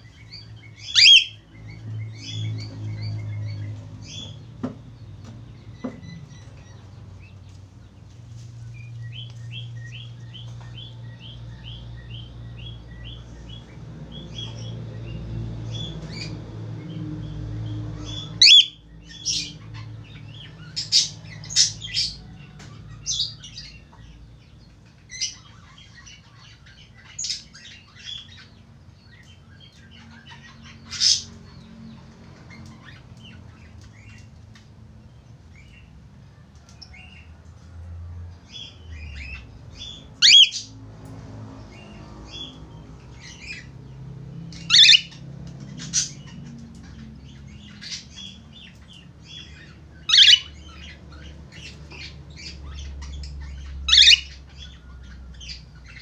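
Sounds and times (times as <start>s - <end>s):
cockatiel chirping: 0.8s - 1.4s, 18.1s - 18.8s, 40.2s - 40.7s, 44.6s - 45.2s, 50.1s - 50.9s, 53.6s - 54.6s.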